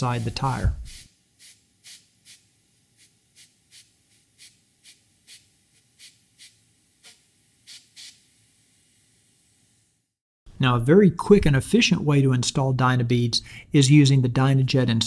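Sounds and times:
compressed air puffs: 0:00.2 - 0:09.0.

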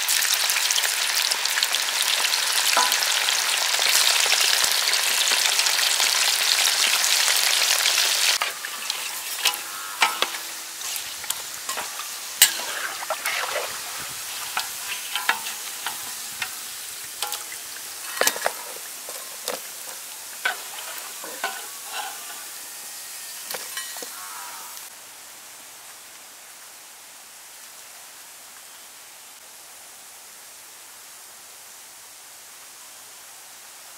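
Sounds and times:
deep-frying sizzle in hot oil: 0:00.0 - 0:25.0
metal ladle clacking and scraping: 0:08.4 - 0:22.6, 0:23.5 - 0:24.1.

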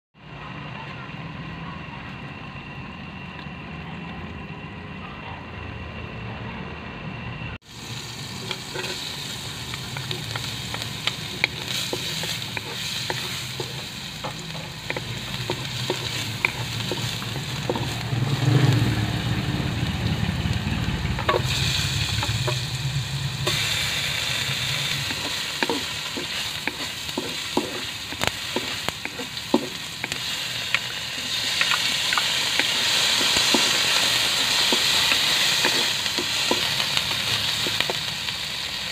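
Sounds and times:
garlic sizzling in hot oil: 0:07.6 - 0:38.9
wooden spatula scraping a wok: 0:08.4 - 0:19.0, 0:21.2 - 0:30.4, 0:31.2 - 0:38.1.

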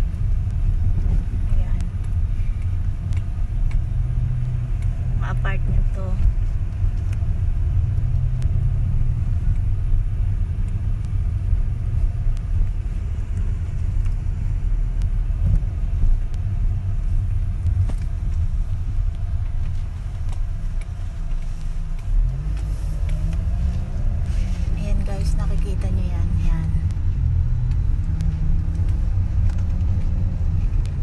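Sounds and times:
car interior low rumble: 0:00.0 - 0:31.0.

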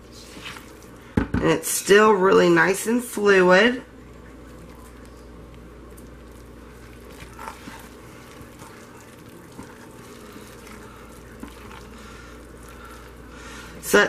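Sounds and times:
spatula squishing soap paste: 0:00.0 - 0:01.2, 0:04.0 - 0:14.0
steady low hum: 0:02.9 - 0:14.0
spatula scraping crock: 0:06.3 - 0:13.9.

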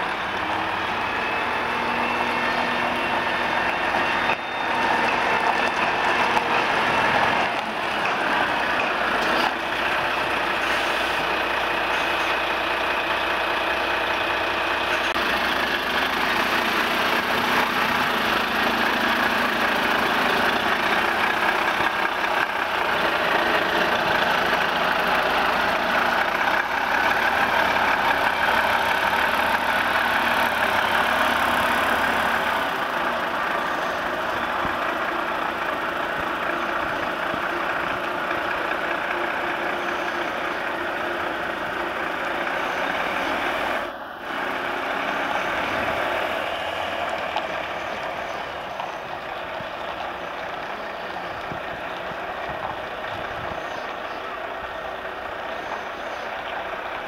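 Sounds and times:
lorry diesel engine: 0:00.0 - 0:57.0.

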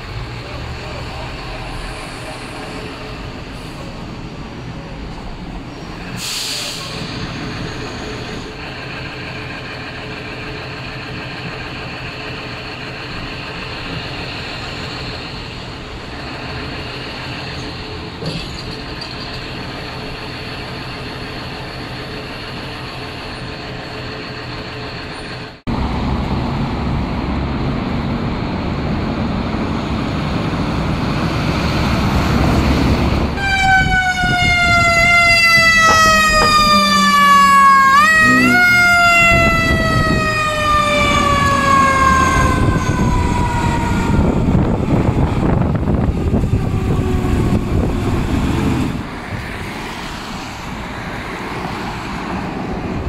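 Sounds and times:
fire engine diesel engine running: 0:00.0 - 0:49.5
siren wailing: 0:33.4 - 0:48.3.

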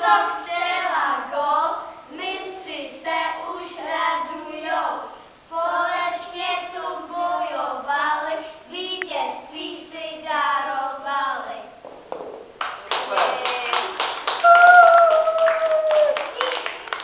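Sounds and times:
children singing together: 0:00.0 - 0:11.5.

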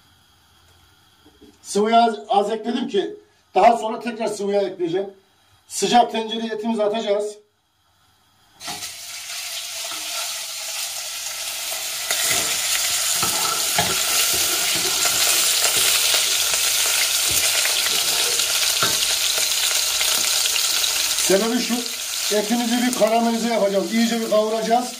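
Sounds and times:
meat sizzling in hot oil: 0:08.6 - 0:24.9.

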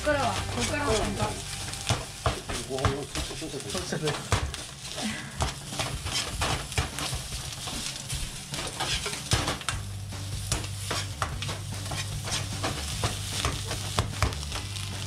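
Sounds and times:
low hum: 0:00.0 - 0:02.6
rice sizzling in a wok: 0:00.0 - 0:15.0
metal ladle scraping pan: 0:08.5 - 0:09.5.

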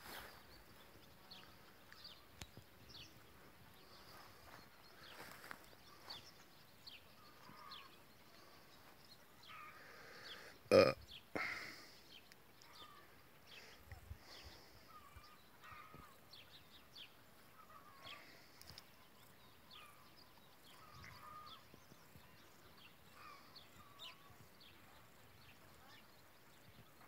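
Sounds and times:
background hiss: 0:00.0 - 0:27.0
faint bird chirps: 0:00.0 - 0:27.0
lower hooked bird calls: 0:03.8 - 0:08.6, 0:17.4 - 0:24.7.

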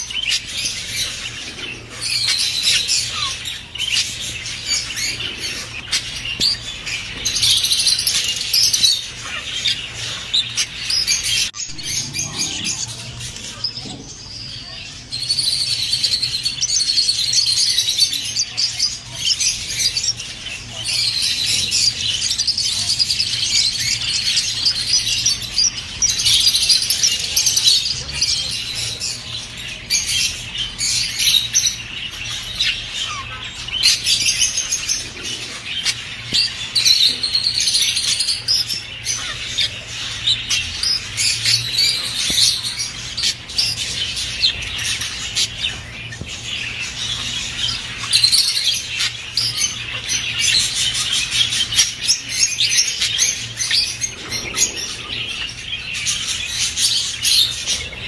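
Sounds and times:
budgerigars chattering and warbling: 0:00.0 - 0:58.0.

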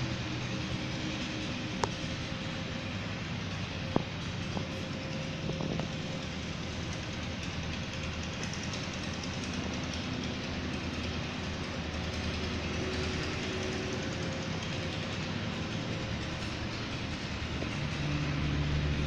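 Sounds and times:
faint whining tones: 0:00.0 - 0:19.0
mechanical rumble and hum: 0:00.0 - 0:19.0.

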